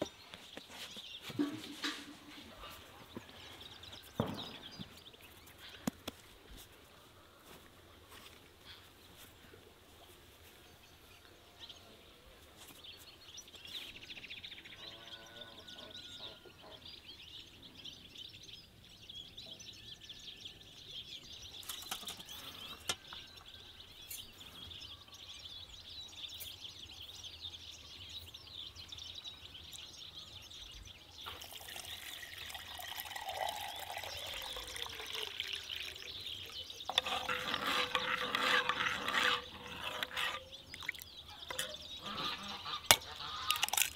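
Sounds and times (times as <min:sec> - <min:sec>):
birds chirping: 0:00.0 - 0:43.9
spoon stirring water in metal cup: 0:31.3 - 0:41.8, 0:42.9 - 0:43.9.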